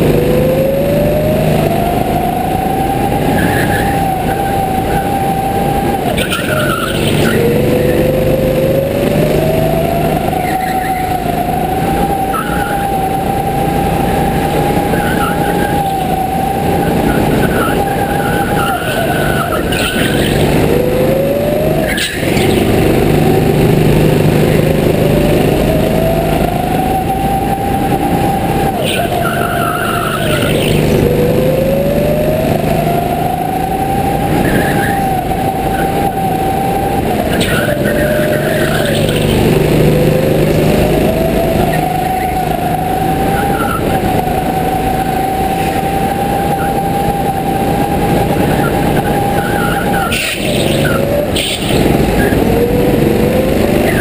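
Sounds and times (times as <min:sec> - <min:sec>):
go-kart engine revving: 0:00.0 - 0:54.0
tyre squeals: 0:21.8 - 0:22.7, 0:34.3 - 0:36.7, 0:48.3 - 0:52.4.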